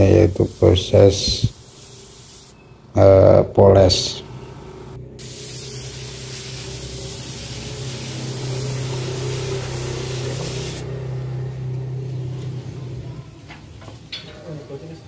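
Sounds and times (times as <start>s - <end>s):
spray gun hissing: 0.0s - 2.6s, 5.2s - 10.9s
low hum: 4.1s - 13.5s.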